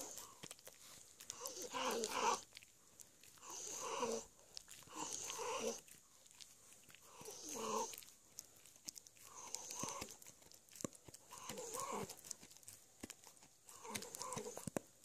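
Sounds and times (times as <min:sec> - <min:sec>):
small dog growling: 0:00.0 - 0:00.5, 0:01.3 - 0:02.6, 0:03.4 - 0:06.0, 0:07.0 - 0:08.1, 0:09.2 - 0:10.3, 0:11.3 - 0:12.5, 0:13.6 - 0:14.8.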